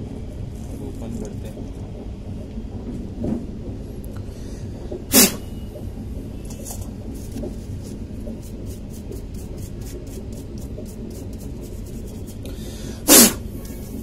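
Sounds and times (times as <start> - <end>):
steady low hum: 0.0 - 14.0
brush sweeping circuit board: 7.7 - 12.5.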